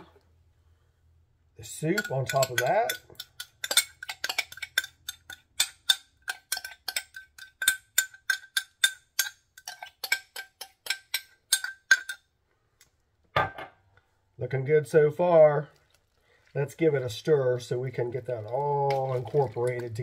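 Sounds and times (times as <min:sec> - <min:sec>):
metal spoon clinking against glass: 0:01.9 - 0:12.2.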